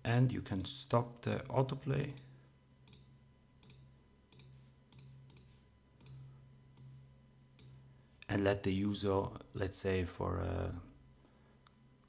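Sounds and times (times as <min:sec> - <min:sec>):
faint low hum: 0:00.0 - 0:12.0
computer mouse clicking: 0:02.1 - 0:06.2.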